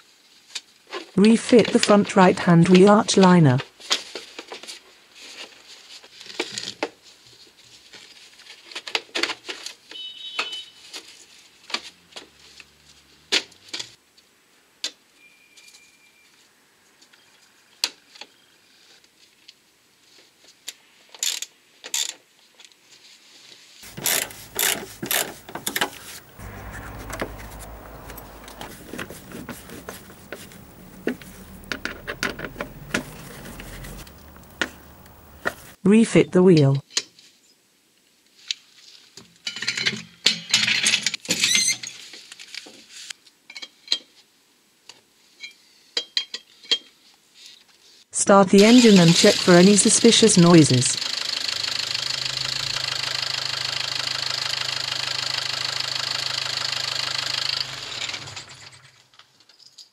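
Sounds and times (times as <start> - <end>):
low background rumble: 23.9 - 35.8.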